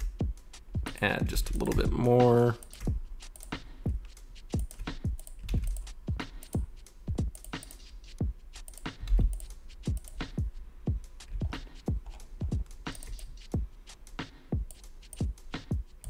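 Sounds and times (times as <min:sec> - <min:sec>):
keyboard and mouse clicking: 0:01.5 - 0:03.6, 0:04.5 - 0:10.4, 0:11.3 - 0:12.3, 0:12.9 - 0:13.5.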